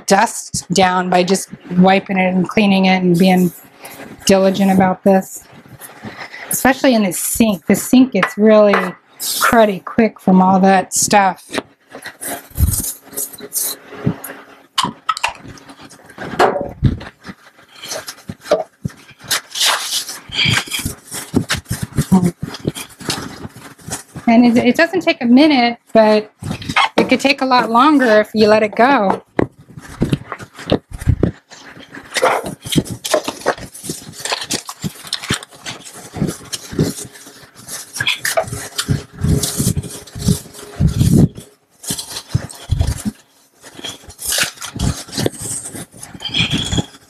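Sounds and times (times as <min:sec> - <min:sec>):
paper towel rubbing on countertop: 0:00.1 - 0:47.0.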